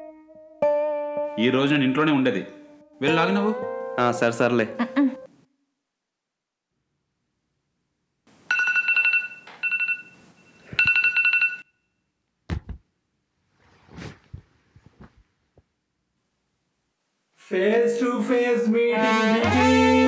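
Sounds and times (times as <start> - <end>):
phone ringing electronic trill: 8.5 - 11.6
dull thump: 12.5 - 12.8
faint rustles: 13.5 - 15.7.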